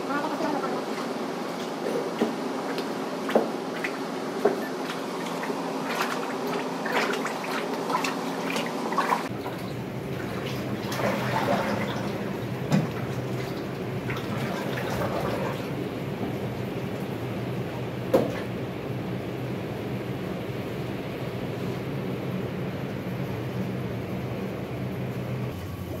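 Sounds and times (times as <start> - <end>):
steady hum: 0.0 - 26.0
liquid clay sloshing: 0.9 - 15.7
liquid pouring and splashing: 2.7 - 15.8.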